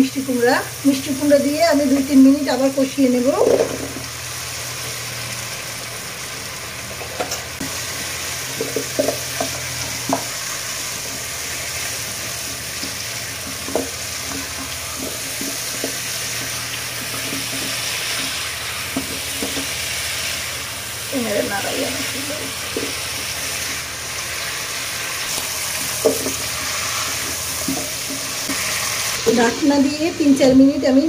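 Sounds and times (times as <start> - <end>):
pumpkin sizzling in oil: 0.0 - 31.0
spatula scraping pot: 11.0 - 20.6.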